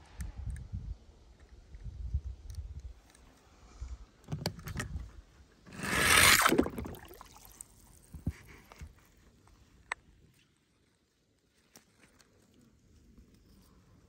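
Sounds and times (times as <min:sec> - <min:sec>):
toy car sliding on plastic track: 0:05.7 - 0:06.6.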